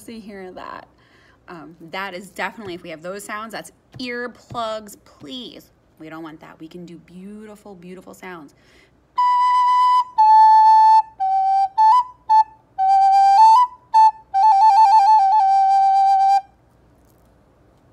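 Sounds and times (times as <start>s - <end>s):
recorder playing melody: 9.2s - 16.5s.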